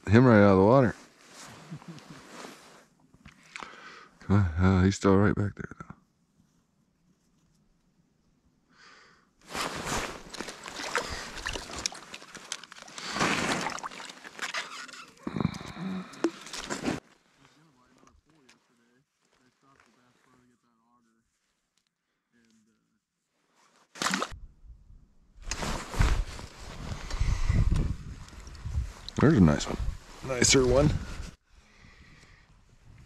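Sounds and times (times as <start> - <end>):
rustling of heavy clothing: 1.0 - 2.9, 9.4 - 14.5, 25.5 - 29.0
water splashing and sloshing: 9.5 - 15.2, 24.0 - 24.4
clicks of slush and ice: 10.2 - 15.0.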